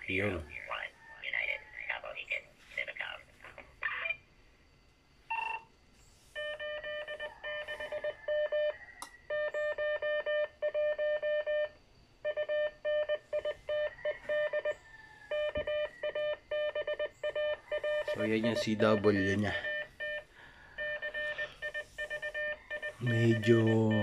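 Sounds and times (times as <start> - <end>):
morse code beep tone: 5.3 - 5.7, 6.4 - 14.7, 15.3 - 24.0.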